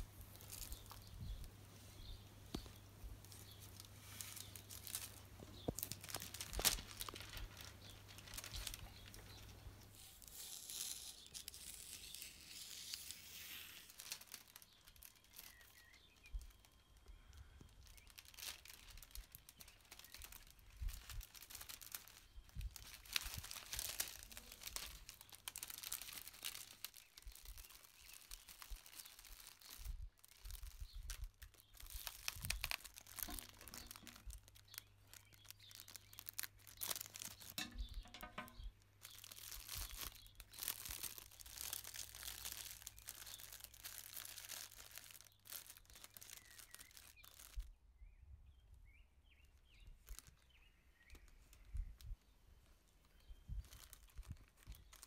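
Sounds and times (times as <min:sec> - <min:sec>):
cellophane crinkling: 0:00.0 - 0:47.7, 0:49.7 - 0:55.0
sticky tape pulled off roll: 0:09.9 - 0:15.6, 0:31.8 - 0:34.8.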